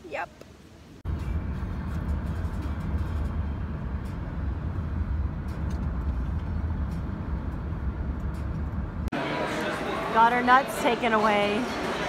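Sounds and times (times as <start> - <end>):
car engine and tyre noise: 1.0 - 9.1.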